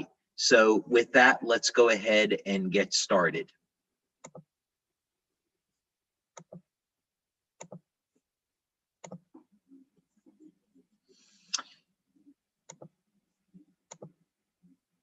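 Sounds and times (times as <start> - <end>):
computer mouse clicking: 4.2 - 4.5, 7.6 - 7.8, 9.0 - 9.3, 12.7 - 12.9, 13.9 - 14.2.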